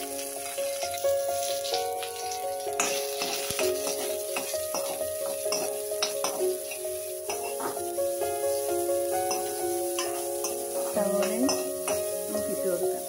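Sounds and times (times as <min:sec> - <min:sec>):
food sizzling in hot oil: 0:00.0 - 0:13.0
metal spoon scraping pan: 0:00.7 - 0:07.8.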